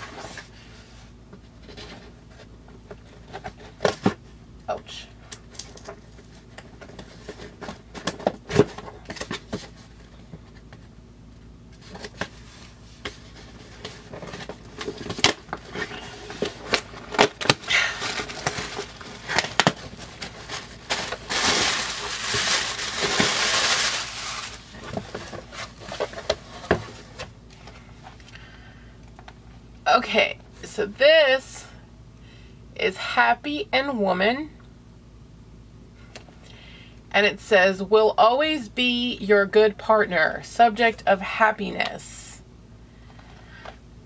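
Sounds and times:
cardboard box being opened: 11.8s - 27.3s.

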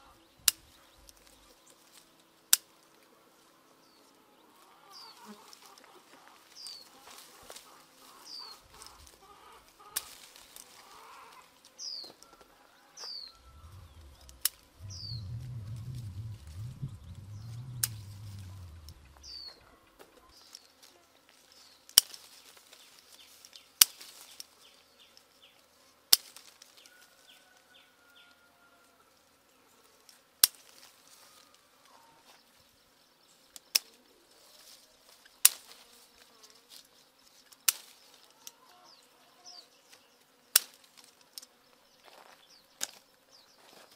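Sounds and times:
bird chirps: 13.0s - 20.5s.

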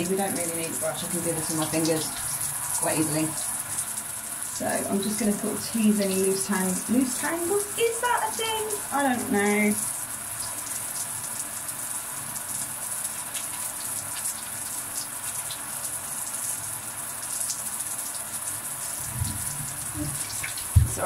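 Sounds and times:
running water hissing: 0.0s - 21.0s
patters of water drops: 13.0s - 21.0s.

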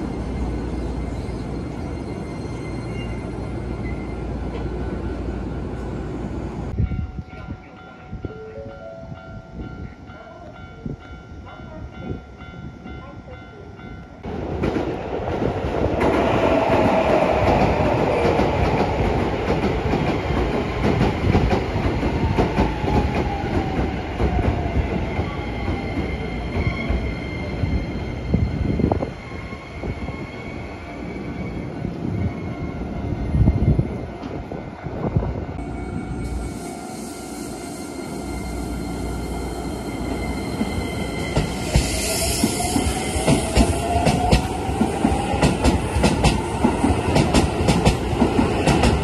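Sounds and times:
level-crossing warning bell: 6.8s - 14.3s.

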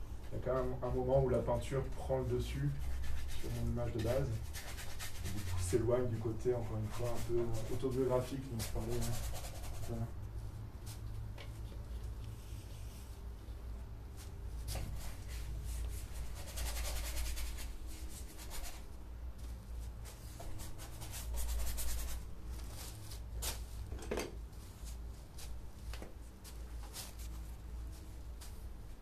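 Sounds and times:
paintbrush scratching on canvas: 2.7s - 10.1s, 14.6s - 18.8s, 20.1s - 22.2s.

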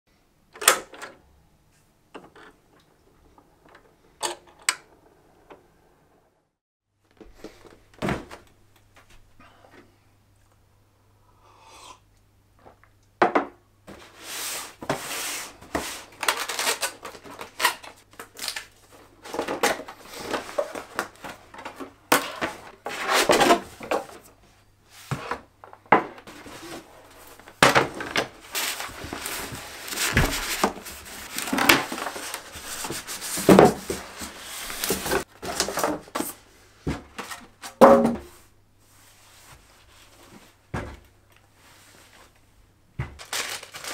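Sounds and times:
cardboard rubbing and scraping: 28.4s - 35.6s.

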